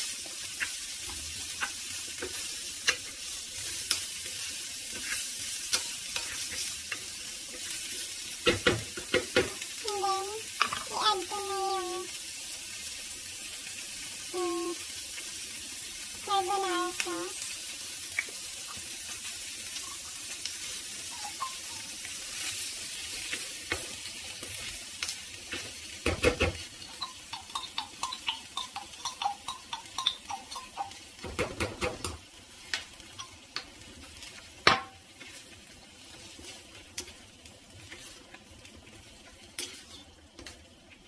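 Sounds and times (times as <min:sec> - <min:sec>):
food sizzling in a frying pan: 0:00.0 - 0:41.0
spoon scraping and tapping pan: 0:00.5 - 0:04.2, 0:04.9 - 0:07.7, 0:10.6 - 0:10.9, 0:25.5 - 0:33.7, 0:34.6 - 0:35.4, 0:39.6 - 0:40.6.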